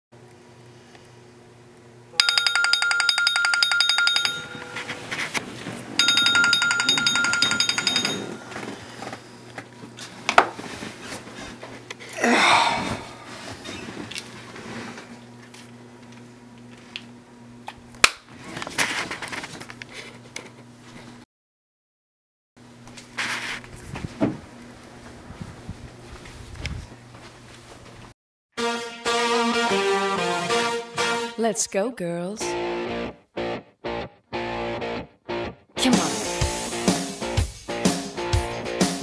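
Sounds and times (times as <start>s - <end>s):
phone alarm pulsing tone: 6.0s - 8.7s.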